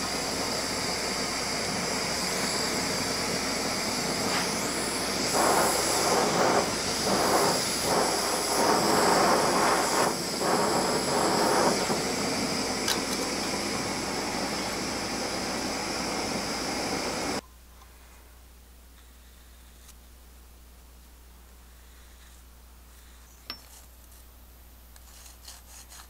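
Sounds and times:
gas torch flame hissing: 0:00.0 - 0:17.4.

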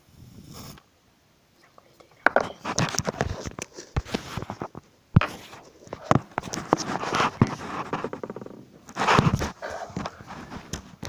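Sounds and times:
fingers rubbing on phone: 0:02.3 - 0:11.0.

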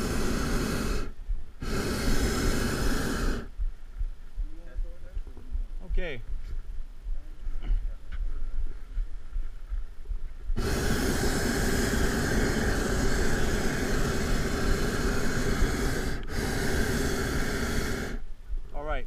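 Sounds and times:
propane burner roaring: 0:00.0 - 0:03.5, 0:10.6 - 0:18.2.

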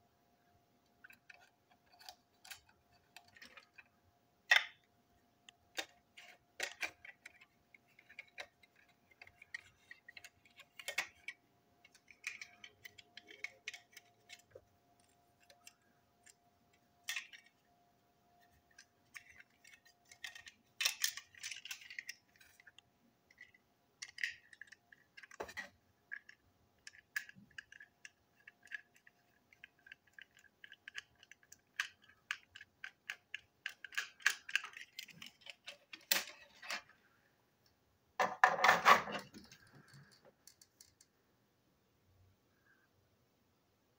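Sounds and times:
plastic toy clicks and scrapes: 0:01.0 - 0:03.9, 0:05.7 - 0:16.4, 0:18.7 - 0:36.9.

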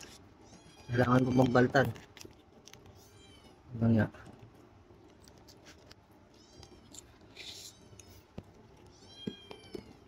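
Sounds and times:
clicks and rustles of food handling: 0:00.0 - 0:03.2, 0:03.9 - 0:10.0
cats meowing faintly: 0:06.3 - 0:10.0.

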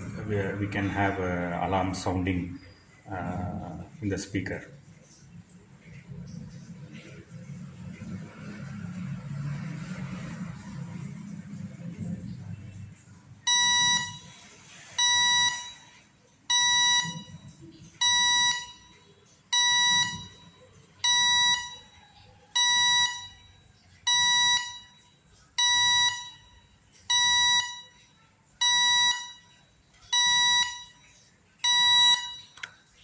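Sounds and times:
high-pitched electronic beeps: 0:12.7 - 0:14.4, 0:15.0 - 0:32.7.

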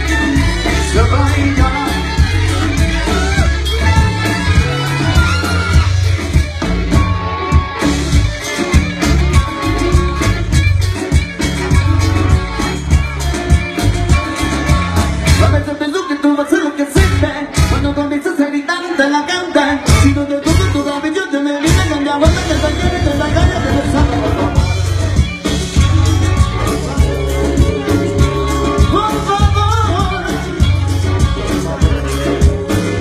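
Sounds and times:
bass guitar: 0:00.0 - 0:33.0
drums: 0:00.0 - 0:33.0
electric guitar: 0:00.0 - 0:33.0
person singing: 0:11.2 - 0:33.0.

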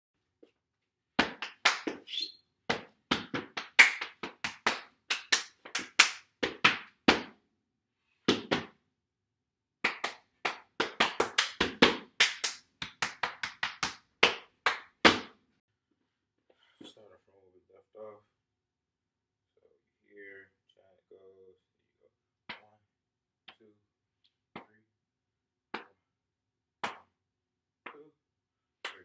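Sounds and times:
hands clapping: 0:01.2 - 0:02.1, 0:02.7 - 0:07.4, 0:09.8 - 0:15.4, 0:22.5 - 0:22.8, 0:25.7 - 0:26.0, 0:26.8 - 0:27.2, 0:27.8 - 0:28.1
feet stomping on hard floor: 0:08.3 - 0:08.8.

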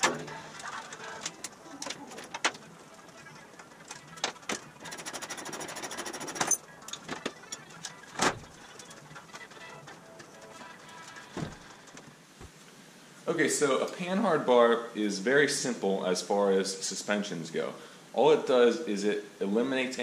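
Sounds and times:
rapid rattling: 0:00.0 - 0:12.2.

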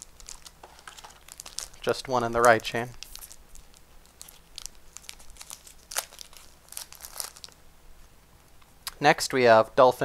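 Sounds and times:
foil pack crinkling: 0:00.0 - 0:07.6.

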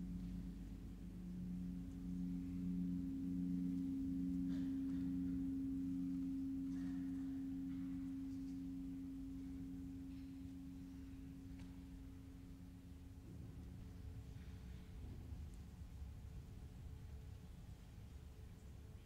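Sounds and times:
gong ringing: 0:00.0 - 0:13.0.

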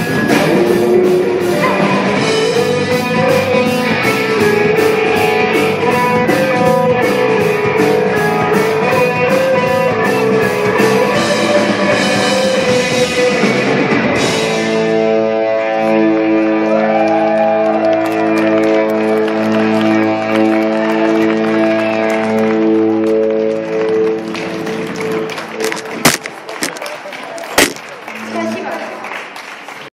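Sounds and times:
drum kit with cymbal beat: 0:00.0 - 0:14.8
bass guitar: 0:00.0 - 0:27.9
electric guitar: 0:00.0 - 0:28.7.

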